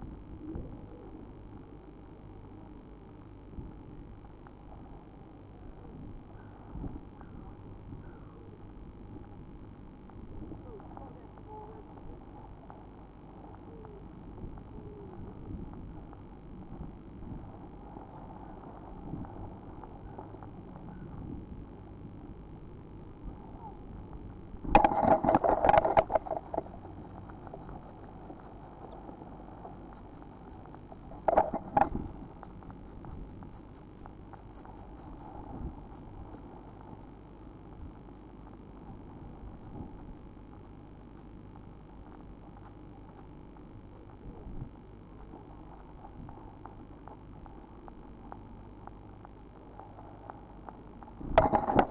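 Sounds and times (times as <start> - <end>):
nestlings cheeping: 10.6 - 15.4, 24.8 - 44.3
wings scuffling in nest box: 24.8 - 28.4.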